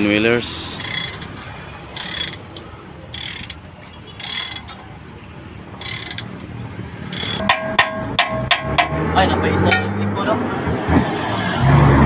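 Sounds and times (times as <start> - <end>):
ratchet wrench clicking: 0.8 - 2.4, 3.2 - 3.6, 4.2 - 4.8, 5.8 - 6.3, 7.1 - 8.9.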